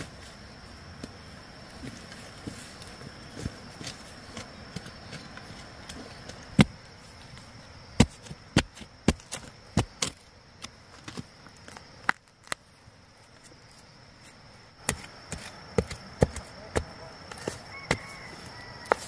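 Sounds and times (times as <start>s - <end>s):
digging tool striking ground: 6.5s - 6.8s, 8.0s - 11.2s, 14.8s - 18.1s.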